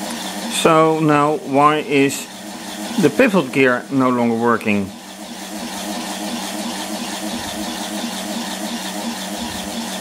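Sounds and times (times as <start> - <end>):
small electric motor humming: 1.3 - 3.7, 4.9 - 10.0.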